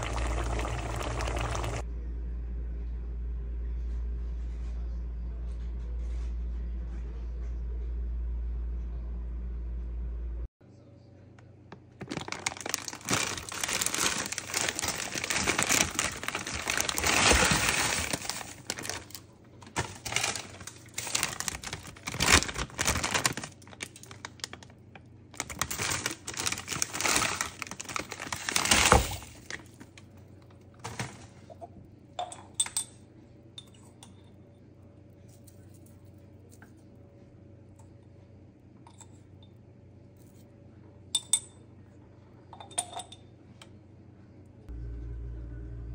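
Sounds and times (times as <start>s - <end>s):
plastic bag crinkling: 11.8s - 30.0s.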